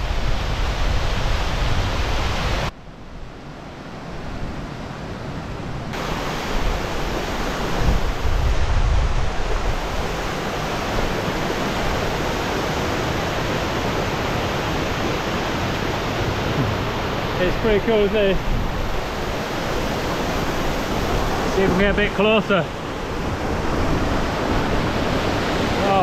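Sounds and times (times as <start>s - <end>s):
water rushing over rocks: 6.0s - 26.0s
wind buffeting microphone: 6.4s - 22.2s.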